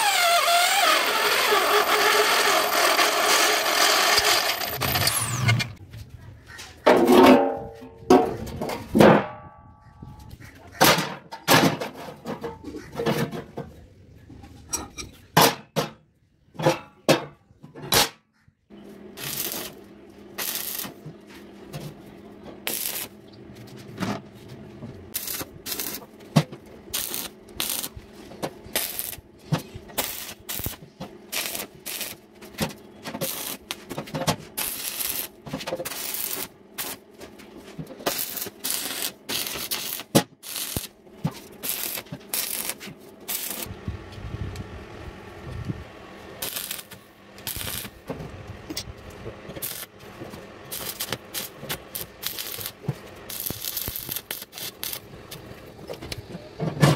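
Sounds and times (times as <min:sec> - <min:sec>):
arc welder crackling: 0:00.0 - 0:05.8, 0:18.8 - 0:23.7, 0:25.0 - 0:43.9, 0:45.6 - 0:56.3.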